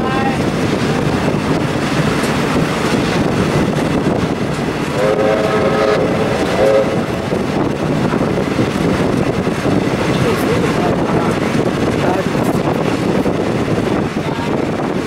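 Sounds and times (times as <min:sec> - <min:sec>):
train carriage running on track: 0:00.0 - 0:15.0
train horn blasts: 0:04.9 - 0:07.7.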